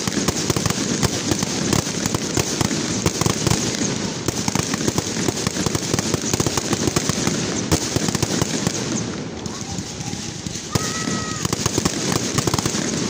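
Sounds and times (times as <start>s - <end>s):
fireworks crackling and popping: 0.0s - 13.0s
firework bang: 7.5s - 13.0s.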